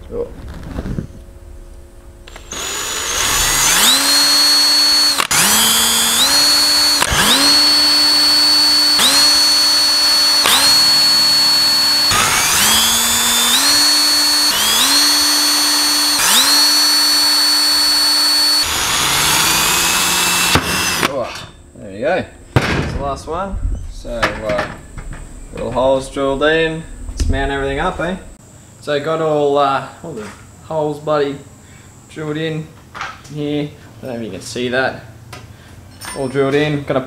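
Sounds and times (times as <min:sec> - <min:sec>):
electric power drill whining: 0:02.3 - 0:21.3.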